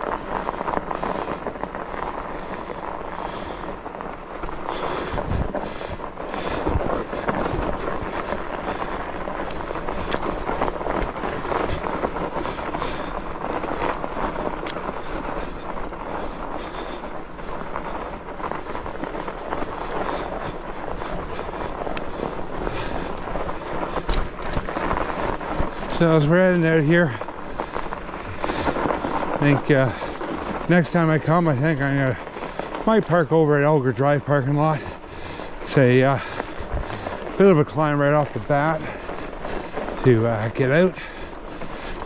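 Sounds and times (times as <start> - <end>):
wind noise on microphone: 0.0 - 26.2, 34.8 - 37.4
bike tyres rolling over snow: 0.0 - 42.0.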